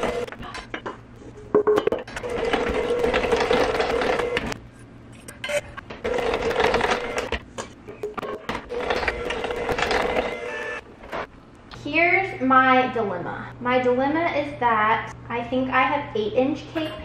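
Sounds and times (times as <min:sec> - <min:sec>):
electric hand mixer beating batter: 0:00.0 - 0:00.3, 0:02.3 - 0:04.6, 0:08.8 - 0:10.8.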